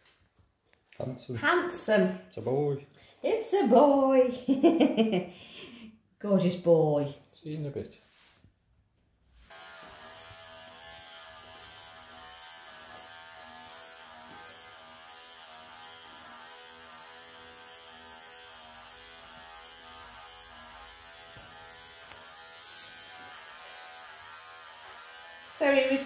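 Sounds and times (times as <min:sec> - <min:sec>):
electric clippers humming: 0:09.5 - 0:26.0.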